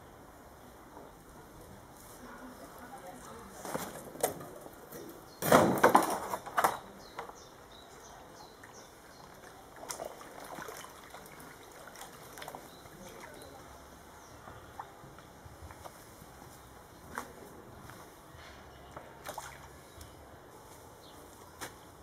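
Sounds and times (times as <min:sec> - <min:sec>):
brick set down: 0:05.4 - 0:06.9
faint water drips: 0:07.2 - 0:16.0, 0:18.6 - 0:20.3
water splash: 0:19.2 - 0:19.8.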